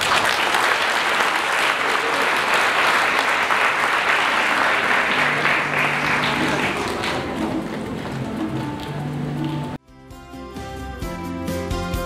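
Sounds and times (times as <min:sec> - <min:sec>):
audience applauding: 0:00.0 - 0:09.8
background music: 0:04.6 - 0:12.0.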